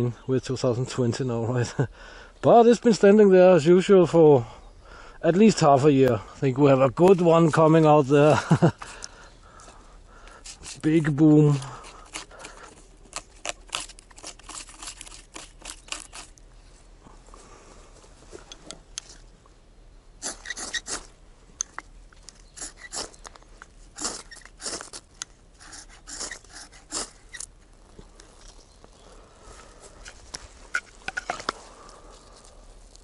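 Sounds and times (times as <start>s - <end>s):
knife scraping wood: 10.3s - 16.4s, 20.2s - 21.1s, 22.4s - 23.3s, 23.9s - 27.8s.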